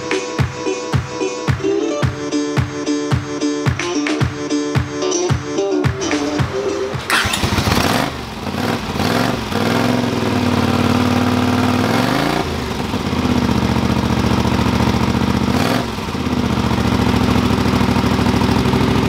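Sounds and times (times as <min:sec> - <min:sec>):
motorcycle throttle blips: 0:06.0 - 0:19.0
motorcycle engine idling: 0:06.3 - 0:19.0.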